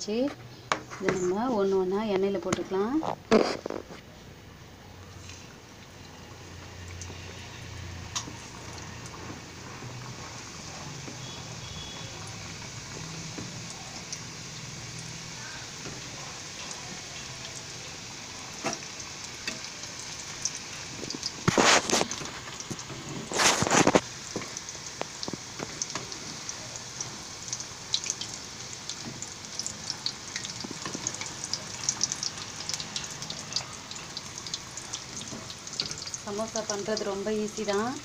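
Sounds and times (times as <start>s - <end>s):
deep-frying sizzle with crackling pops: 0.0s - 38.0s.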